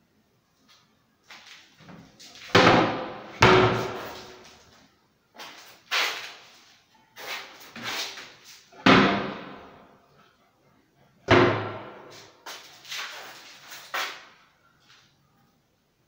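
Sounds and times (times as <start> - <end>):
cabinet doors knocking shut: 11.3 - 12.1.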